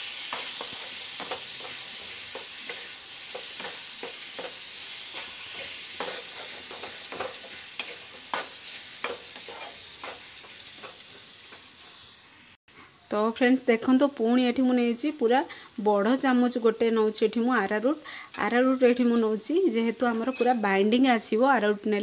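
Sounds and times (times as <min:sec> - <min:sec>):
metal spoon scraping a pan: 0:00.0 - 0:11.8
sizzling hiss: 0:00.0 - 0:22.0.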